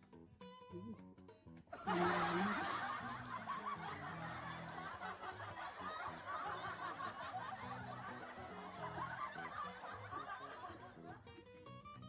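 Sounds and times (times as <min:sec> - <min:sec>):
people snickering and chuckling: 0:01.8 - 0:11.2.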